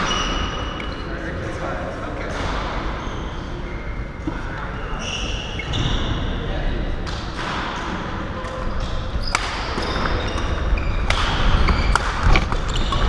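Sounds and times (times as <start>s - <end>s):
court shoes squeaking: 0.0s - 1.3s, 2.2s - 6.4s, 7.1s - 13.0s
low hum of hall: 0.0s - 13.0s
rackets striking shuttlecock: 7.0s - 13.0s.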